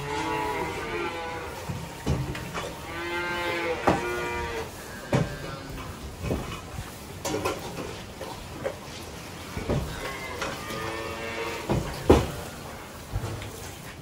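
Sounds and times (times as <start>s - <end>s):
calves mooing: 0.0s - 6.6s, 9.5s - 13.4s.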